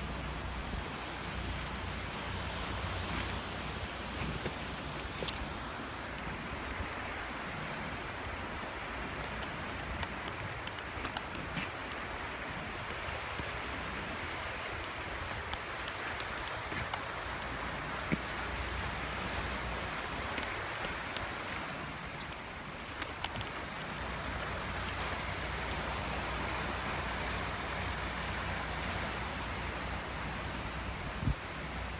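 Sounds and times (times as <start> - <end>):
sea waves breaking on rocks: 0.1 - 31.9
wind rumble on microphone: 26.3 - 31.9.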